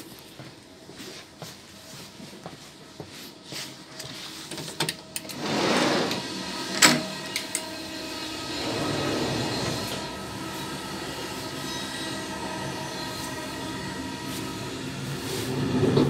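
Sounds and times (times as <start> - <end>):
footsteps: 0.0 - 4.8
train running noise: 1.8 - 16.0
hissing swell: 5.9 - 15.9.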